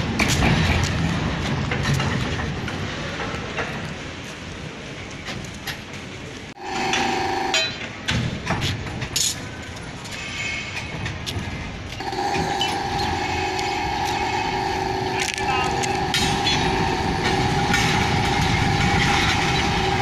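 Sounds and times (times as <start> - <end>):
rail carriage rumbling and clinking: 0.0 - 20.0
steady humming tone: 6.6 - 8.0, 12.0 - 20.0.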